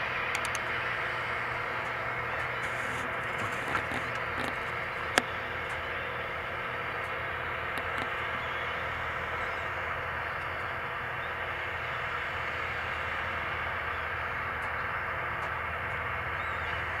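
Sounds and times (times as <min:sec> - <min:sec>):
flock of gulls calling: 0:00.0 - 0:17.0
tractor engine running: 0:00.0 - 0:17.0.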